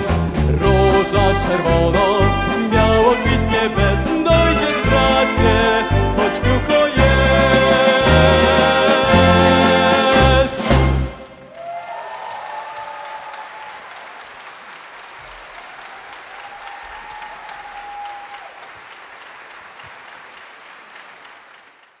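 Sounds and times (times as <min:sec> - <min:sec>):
audience applauding: 0:11.4 - 0:22.0.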